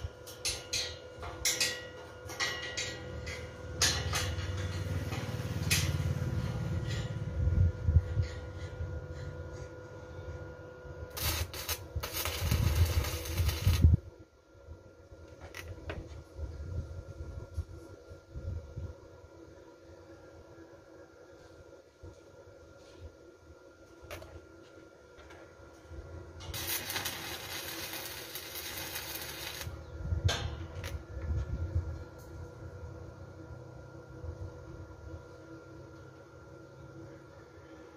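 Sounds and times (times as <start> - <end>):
arc welding crackle: 0.0 - 9.3, 11.1 - 14.1, 25.7 - 32.4
welding arc crackling and sizzling: 11.1 - 14.1, 25.7 - 29.8, 30.6 - 31.1.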